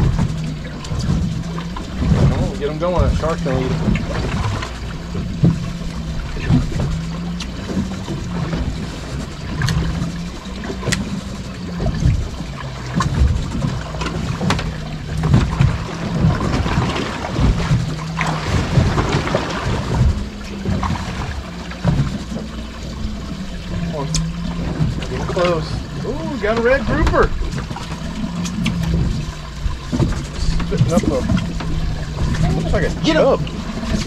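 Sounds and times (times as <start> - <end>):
water slapping against boat hull: 0.0 - 34.0
wind on microphone: 0.0 - 34.0
sharp clicks and knocks: 9.2 - 11.2, 11.8 - 16.8, 26.6 - 32.4.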